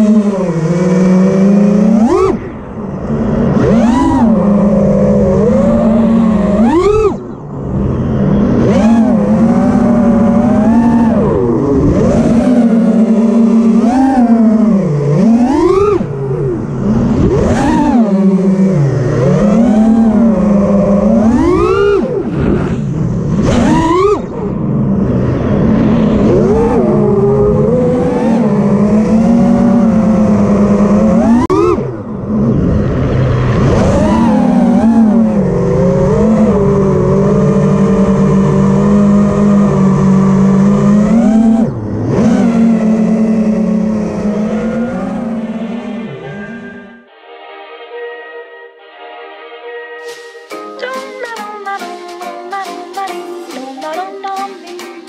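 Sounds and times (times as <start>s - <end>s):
quadcopter motors whining: 0.0s - 25.2s.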